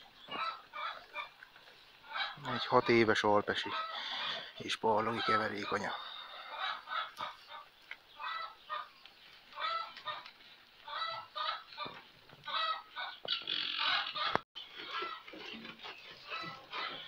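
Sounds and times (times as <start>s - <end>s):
poultry calling: 0.0s - 17.0s.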